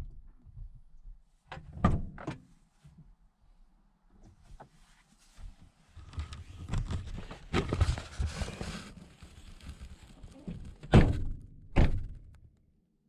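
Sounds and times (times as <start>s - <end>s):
loud thumps: 10.8s - 12.4s.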